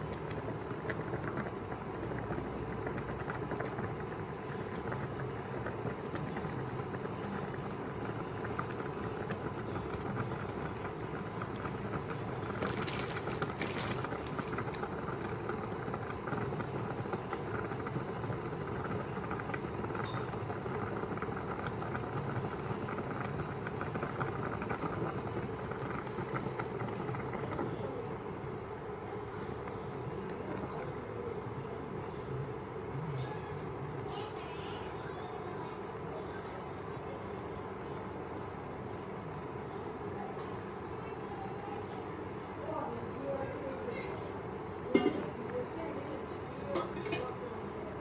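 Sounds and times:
water boiling in a pot: 0.0 - 48.0.

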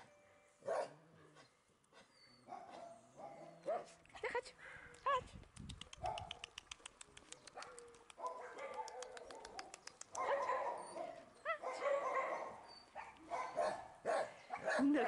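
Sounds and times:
dogs barking and whining: 0.6 - 4.0, 7.5 - 15.0
dog yelping: 7.6 - 14.9.

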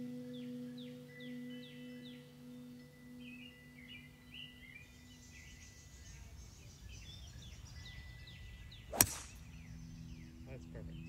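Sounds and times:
golf club striking ball: 8.9 - 9.8.

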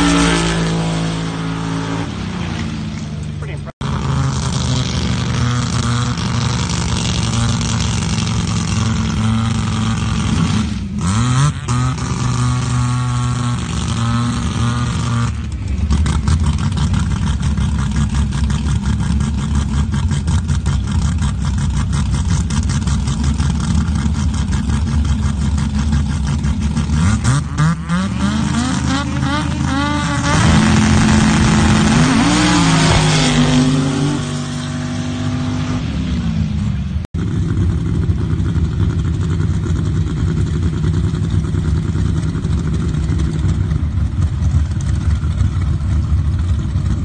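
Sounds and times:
race car engines idling: 15.3 - 27.0, 37.2 - 47.0
rough engine idling with pulsing beat: 15.3 - 27.5, 37.2 - 47.0.

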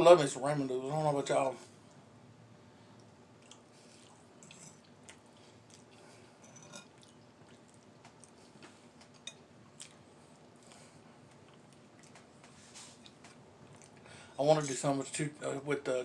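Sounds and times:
man chewing noodles: 2.9 - 14.1.

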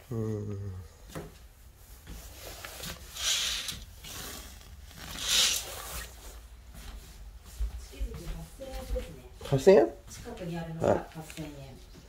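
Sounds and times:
curtain fabric swishing: 1.8 - 7.6.

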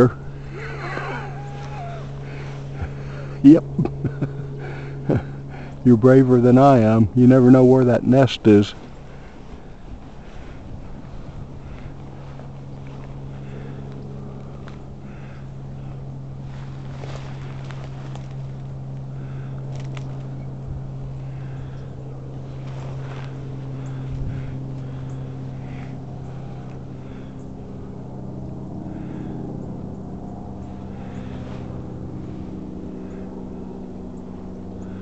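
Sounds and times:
engine droning: 0.0 - 35.0
dry brush rustling: 0.3 - 3.4, 8.5 - 27.3, 30.7 - 33.7.

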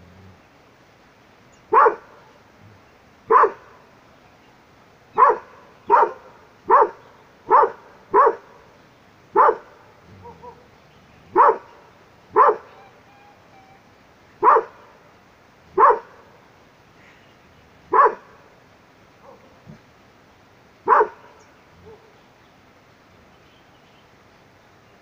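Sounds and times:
dog barking: 1.7 - 2.2, 3.3 - 3.8, 5.2 - 8.6, 9.4 - 10.7, 11.3 - 12.8, 14.4 - 14.9, 15.8 - 16.3, 17.9 - 18.4, 19.2 - 19.7, 20.9 - 22.1.

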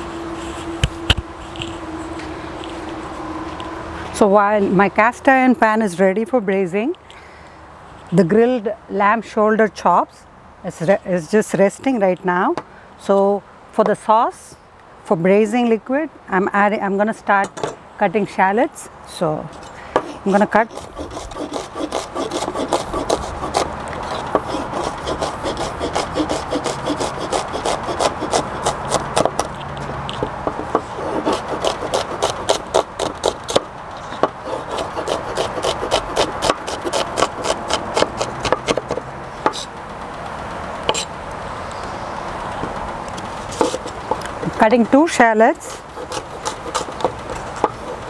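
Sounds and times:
knife chopping on wooden board: 34.2 - 39.7.

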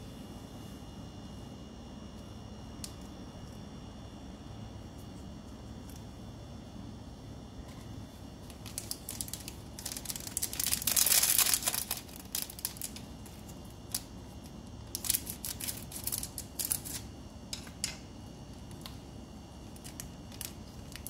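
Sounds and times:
foil sachet crinkling: 8.4 - 17.1, 19.7 - 21.0
scissors cutting foil: 8.7 - 14.1, 14.9 - 17.1.

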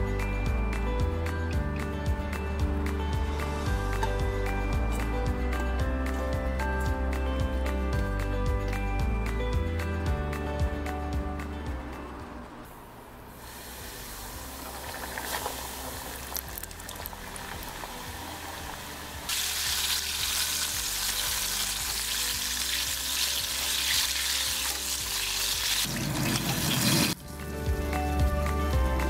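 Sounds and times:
faint background music: 0.0 - 29.0
chicken sizzling in hot oil: 13.4 - 27.4.

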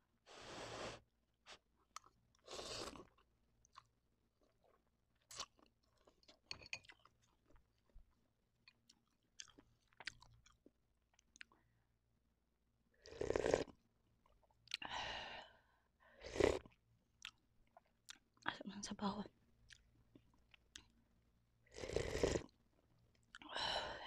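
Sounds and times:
slurping noodles: 0.3 - 1.0, 2.4 - 3.1, 13.0 - 13.7, 16.2 - 16.7, 21.7 - 22.5
chewing: 1.8 - 8.0, 8.7 - 11.6, 16.6 - 18.2, 19.6 - 21.0.

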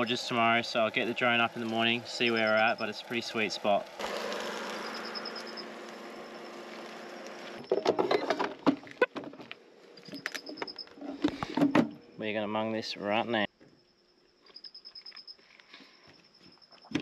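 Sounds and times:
fish frying in a pan: 0.1 - 7.5.

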